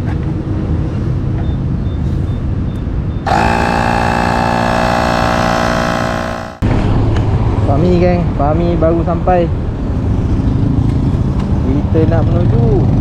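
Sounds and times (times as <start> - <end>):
tyre inflator motor buzzing: 3.3 - 6.6.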